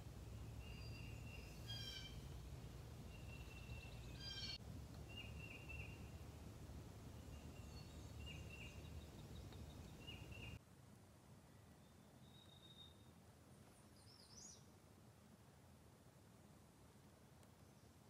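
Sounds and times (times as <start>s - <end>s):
low steady rumble: 0.0s - 11.3s
songbirds singing: 0.1s - 6.3s, 7.0s - 10.6s, 11.7s - 13.1s, 13.8s - 14.7s.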